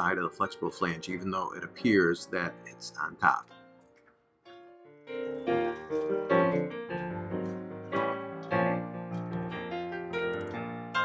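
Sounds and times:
piano background music: 0:00.0 - 0:11.0.

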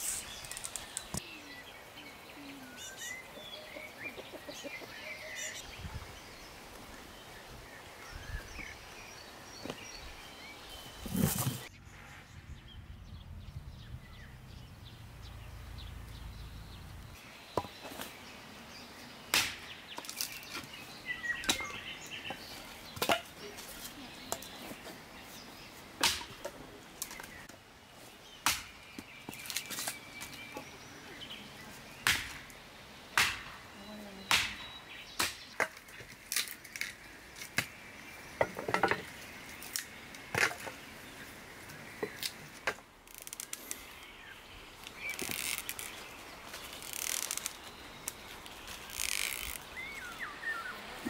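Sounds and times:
rustling: 0:10.8 - 0:11.7, 0:44.6 - 0:50.2
axe chopping branches: 0:19.3 - 0:20.7, 0:26.0 - 0:27.2, 0:28.4 - 0:30.0, 0:32.0 - 0:32.5, 0:33.2 - 0:33.6, 0:34.3 - 0:37.8.

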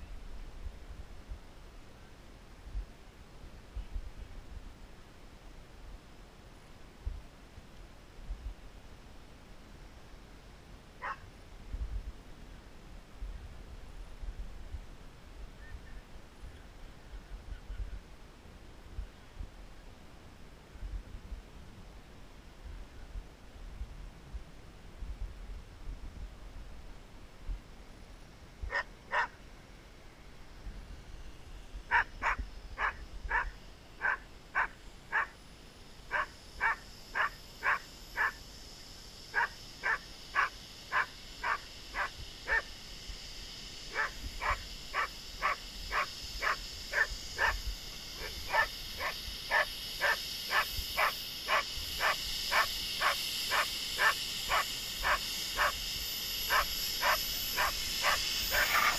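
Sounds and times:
model jet turbine whine: 0:00.0 - 0:58.9
dog barking: 0:11.0 - 0:11.2, 0:28.7 - 0:29.4, 0:31.9 - 0:35.3, 0:36.1 - 0:38.4, 0:39.4 - 0:42.7, 0:43.9 - 0:47.6, 0:48.2 - 0:55.8, 0:56.5 - 0:58.9.

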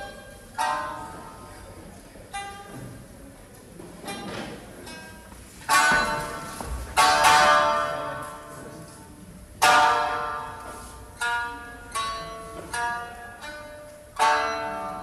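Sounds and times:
quiet plucked string notes: 0:00.0 - 0:15.0.

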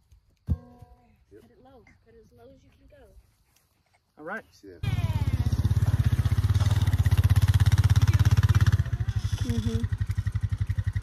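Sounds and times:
atv engine driving off: 0:04.8 - 0:11.0.

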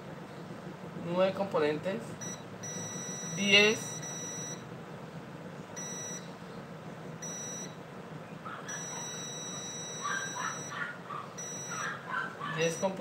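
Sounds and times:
multimeter continuity beep: 0:02.2 - 0:04.7, 0:05.8 - 0:06.3, 0:07.2 - 0:07.8, 0:08.7 - 0:10.8, 0:11.4 - 0:12.0, 0:12.6 - 0:13.0.

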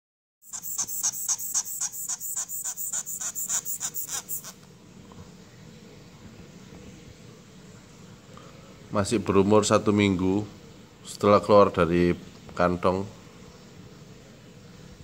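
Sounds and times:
shrill high-pitched animal cries: 0:00.4 - 0:04.6.

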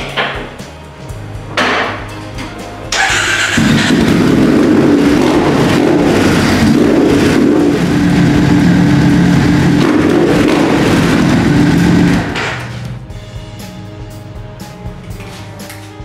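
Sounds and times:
motorcycle engine idling: 0:03.0 - 0:12.9.

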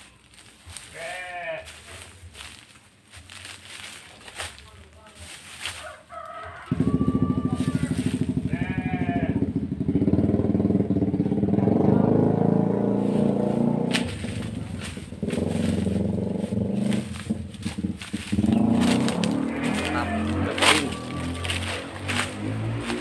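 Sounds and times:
motorcycle engine running: 0:06.6 - 0:23.0.

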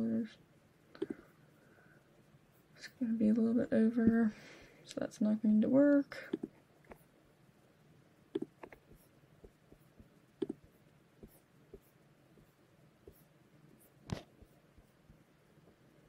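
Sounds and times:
computer mouse clicks: 0:06.3 - 0:07.0, 0:08.3 - 0:09.6, 0:10.4 - 0:10.7.

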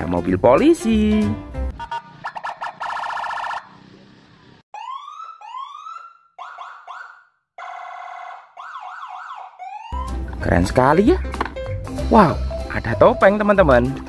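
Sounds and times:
police car siren: 0:01.7 - 0:10.3.

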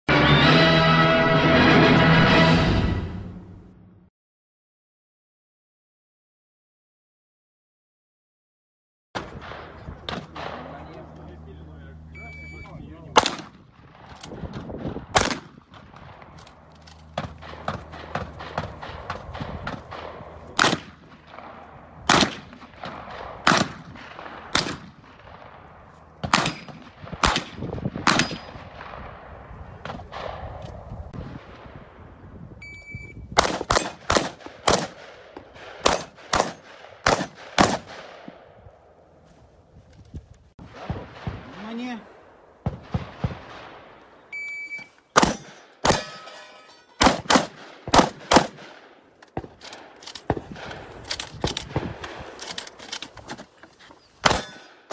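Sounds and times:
shotgun shots: 0:09.2 - 0:11.0, 0:13.1 - 0:16.4, 0:17.0 - 0:30.6, 0:33.4 - 0:38.5, 0:40.6 - 0:44.1, 0:45.1 - 0:46.4, 0:47.0 - 0:52.4, 0:54.2 - 0:54.9
shot timer beep: 0:12.2 - 0:12.8, 0:32.6 - 0:33.2, 0:44.3 - 0:44.9.

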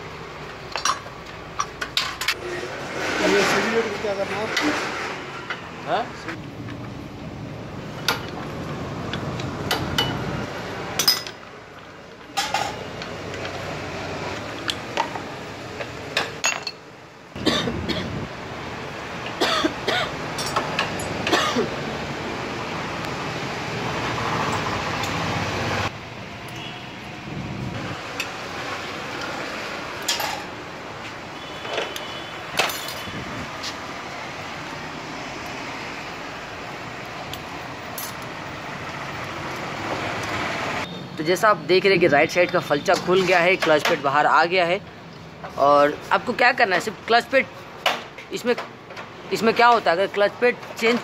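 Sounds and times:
metal tools clinking: 0:00.7 - 0:02.4, 0:11.0 - 0:11.5, 0:16.2 - 0:16.8, 0:20.3 - 0:21.5, 0:32.6 - 0:33.2, 0:37.3 - 0:38.3.

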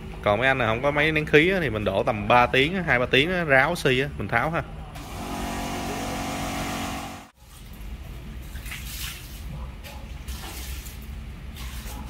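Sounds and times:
small electric motor humming: 0:05.0 - 0:07.3.

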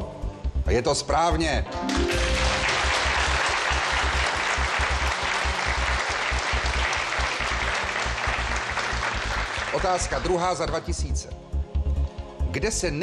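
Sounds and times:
studio audience applauding: 0:01.7 - 0:10.9.

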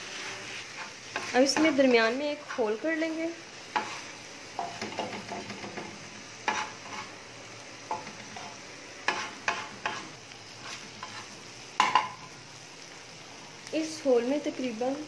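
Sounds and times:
metal spatula scraping on griddle: 0:00.0 - 0:02.2, 0:03.6 - 0:07.2, 0:07.9 - 0:12.4
faint frying sizzle: 0:00.0 - 0:15.0.

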